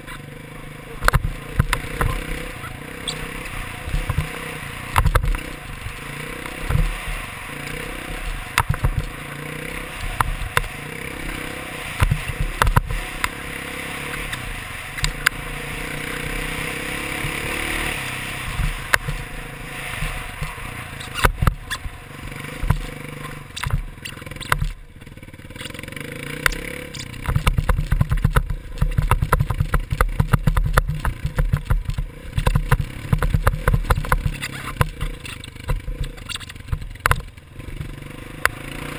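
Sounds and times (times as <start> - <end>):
dirt bike engine revving: 0.0 - 38.9
knocks and rattles from bumps: 8.3 - 9.2, 20.0 - 38.0.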